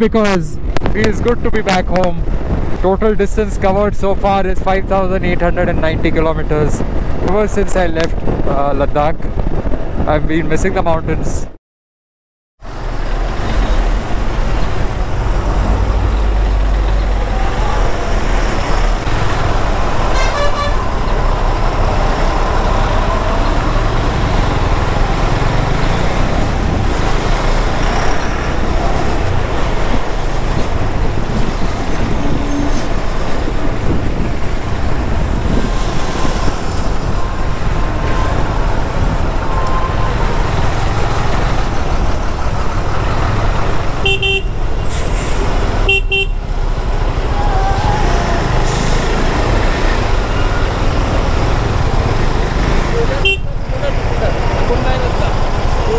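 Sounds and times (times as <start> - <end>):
wind and road noise: 0.0 - 11.6, 12.6 - 55.9
vehicle horns: 20.0 - 21.0, 44.0 - 46.5, 53.2 - 53.6.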